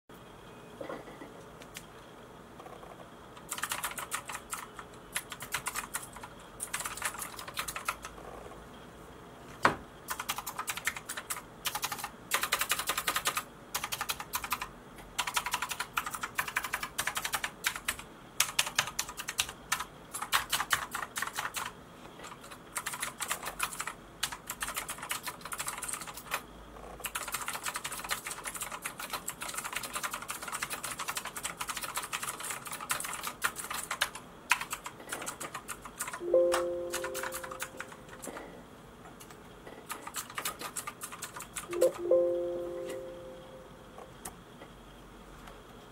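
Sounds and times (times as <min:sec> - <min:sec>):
keyboard keystroke clicks: 0:33.9 - 0:38.3.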